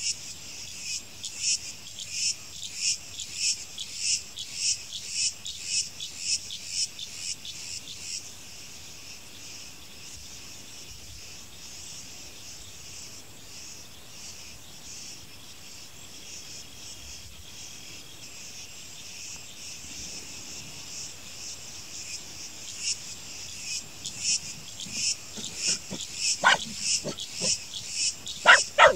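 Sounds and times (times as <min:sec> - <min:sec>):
insects chirping: 0:07.5 - 0:28.9.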